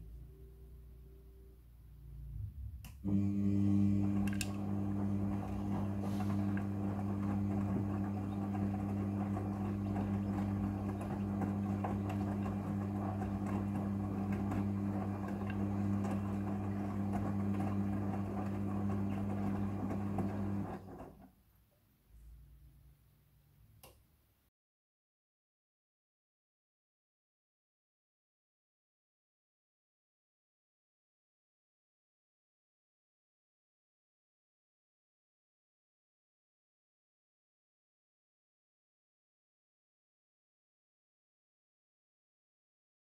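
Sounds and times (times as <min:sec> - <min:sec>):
washing machine motor hum: 0:00.0 - 0:21.2
wet laundry tumbling: 0:04.0 - 0:20.9.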